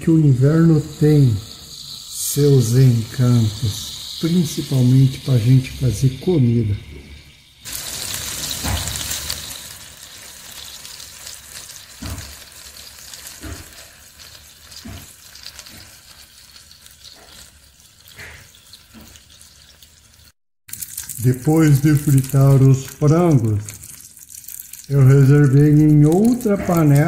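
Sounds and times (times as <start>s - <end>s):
chicken sizzling in hot fat: 0.0s - 27.0s.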